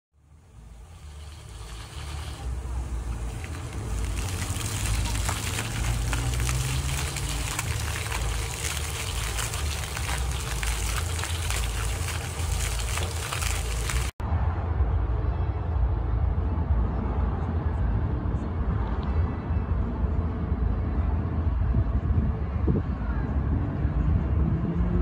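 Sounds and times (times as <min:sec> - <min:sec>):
fountain jets splashing on paving: 0:00.3 - 0:14.2.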